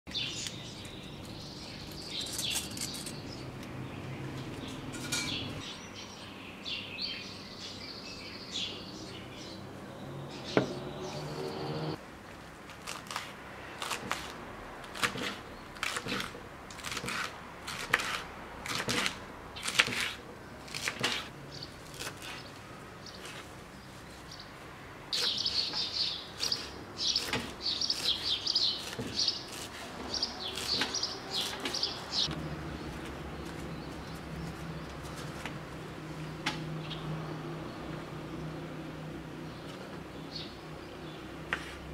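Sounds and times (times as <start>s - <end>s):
birds chirping: 0.1s - 12.0s, 21.5s - 41.8s
knife chopping on wooden board: 12.9s - 21.3s, 26.4s - 31.8s.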